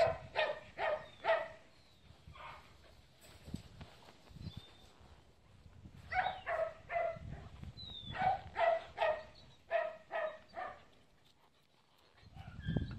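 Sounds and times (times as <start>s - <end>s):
dog barking high-pitched: 0.0s - 1.6s, 6.1s - 7.2s, 8.1s - 10.8s.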